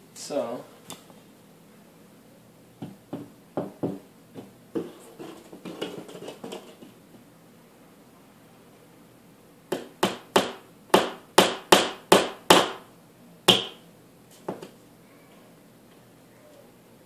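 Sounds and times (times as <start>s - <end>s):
hammer striking nail: 9.7s - 12.8s, 13.5s - 13.8s.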